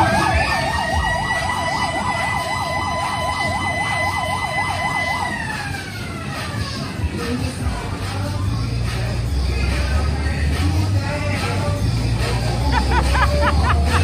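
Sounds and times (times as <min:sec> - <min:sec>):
steady higher tone: 0:00.0 - 0:06.0
electronic siren warbling: 0:00.0 - 0:07.0.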